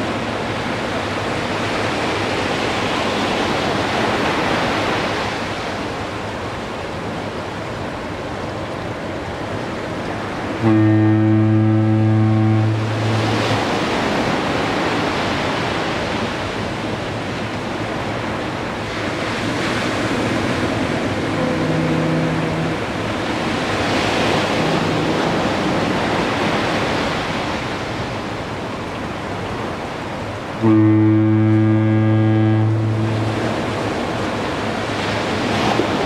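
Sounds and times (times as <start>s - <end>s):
surf washing onto beach: 0.0s - 36.0s
fainter higher foghorn: 10.5s - 14.4s, 20.5s - 27.1s, 30.6s - 35.9s
low foghorn blast: 10.5s - 15.3s, 20.1s - 27.3s, 30.6s - 36.0s.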